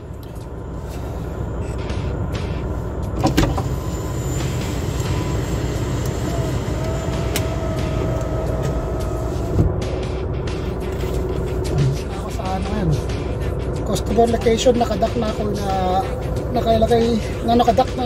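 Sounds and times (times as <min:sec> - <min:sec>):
faint whining tone: 0:00.0 - 0:14.0
diesel truck engine idling: 0:00.0 - 0:18.0.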